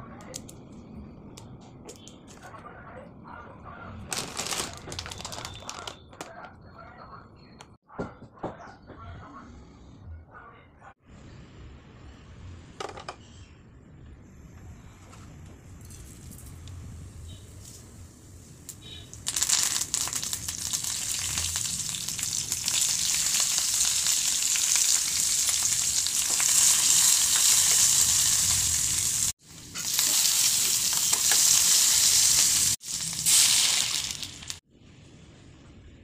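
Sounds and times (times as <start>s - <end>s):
vegetables sizzling in hot oil: 19.2s - 34.6s.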